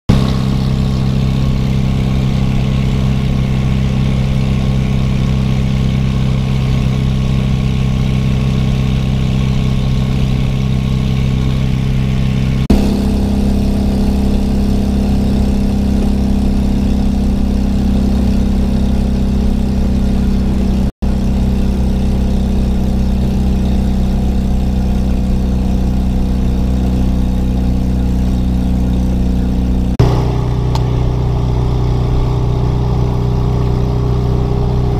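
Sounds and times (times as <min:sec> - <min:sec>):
car engine cruising: 0:00.1 - 0:34.9.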